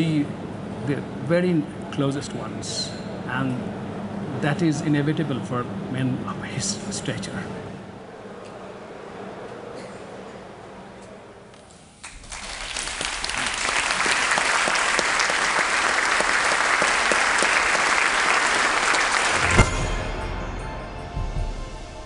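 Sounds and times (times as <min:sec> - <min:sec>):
audience applauding: 0:12.0 - 0:19.8.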